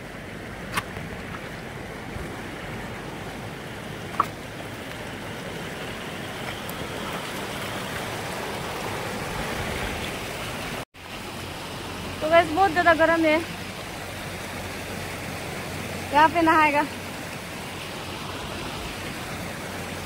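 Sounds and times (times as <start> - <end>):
river rushing over stones: 0.0 - 20.0.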